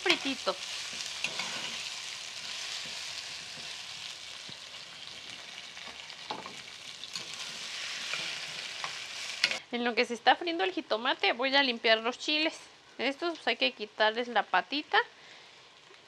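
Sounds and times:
spatula stirring: 0:00.0 - 0:09.6
vegetables sizzling in hot oil: 0:00.0 - 0:09.6.

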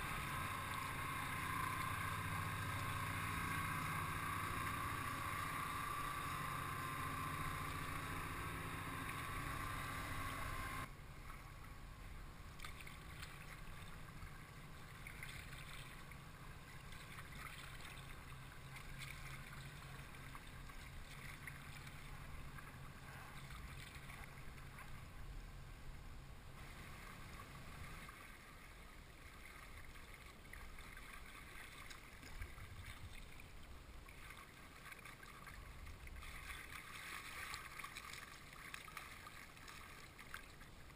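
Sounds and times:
water lapping: 0:00.0 - 0:25.3, 0:26.5 - 0:40.9
boat engine drone: 0:00.0 - 0:39.9
paddle splashes: 0:12.5 - 0:25.1, 0:26.5 - 0:40.9.

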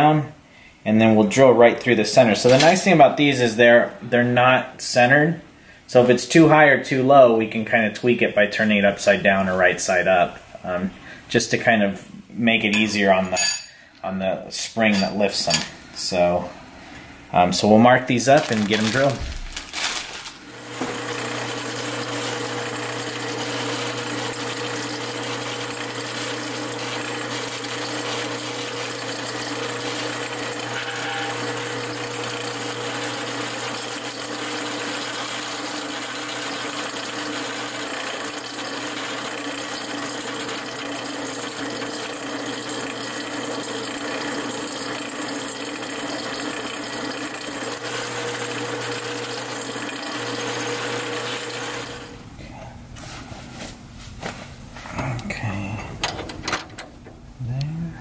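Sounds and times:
drill press motor hum: 0:20.4 - 0:52.3
drill bit drilling through steel: 0:20.6 - 0:52.1.

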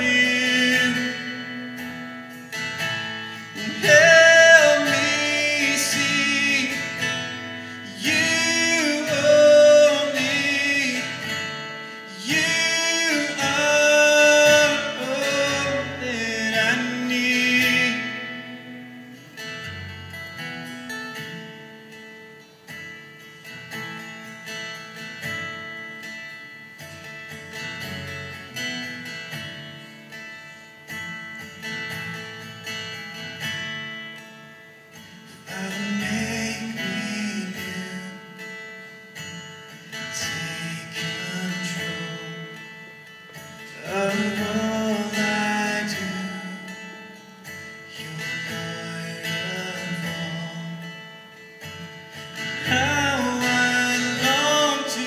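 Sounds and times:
man singing: 0:00.0 - 0:01.8, 0:03.3 - 0:18.9, 0:35.3 - 0:38.6, 0:40.0 - 0:43.0, 0:43.6 - 0:51.3, 0:52.3 - 0:55.0
acoustic guitar playing slowly: 0:00.0 - 0:55.0.

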